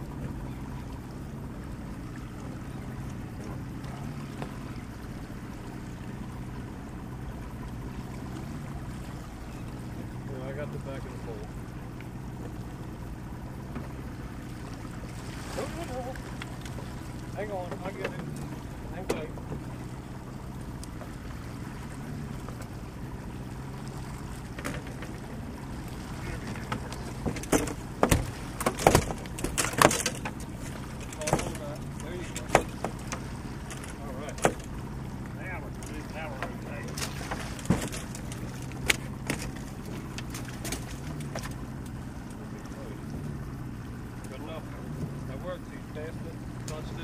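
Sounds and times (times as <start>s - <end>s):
boat motor humming: 0.0s - 47.0s
water against hull: 0.0s - 47.0s
wind: 0.0s - 47.0s
faint clicks: 12.0s - 12.6s, 20.7s - 21.2s.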